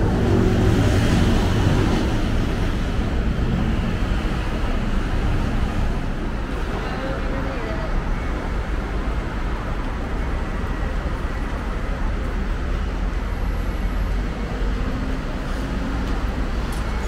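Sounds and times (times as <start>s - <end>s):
city traffic rumble: 0.0s - 17.0s
faint voices: 6.2s - 17.0s.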